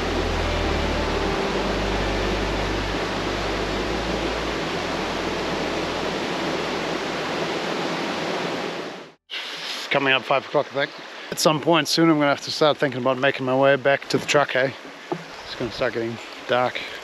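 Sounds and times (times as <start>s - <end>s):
river rushing over rough water: 0.0s - 9.1s.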